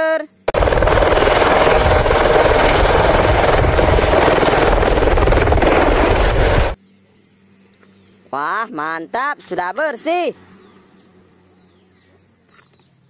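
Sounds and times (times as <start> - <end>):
helicopter rotor chop: 0.5 - 6.8
high turbine whine: 0.5 - 6.8.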